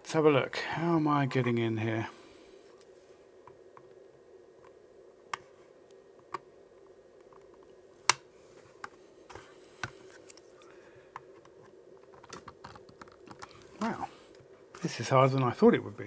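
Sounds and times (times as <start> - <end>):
faint steady hum: 0.0 - 16.0
plastic clicks and scraping: 11.2 - 13.7.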